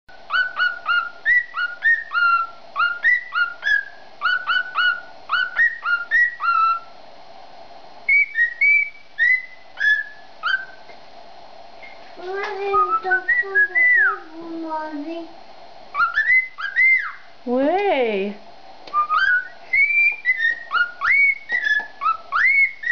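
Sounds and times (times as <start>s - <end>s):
cockatiel whistling: 0.3s - 6.9s, 8.1s - 10.8s, 12.6s - 14.3s, 15.9s - 17.3s, 18.9s - 22.9s.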